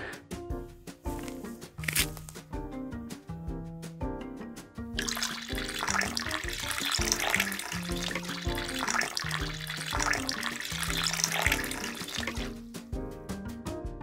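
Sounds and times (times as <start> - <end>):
background music: 0.0 - 14.0
thin stream of water splashing: 5.0 - 12.6.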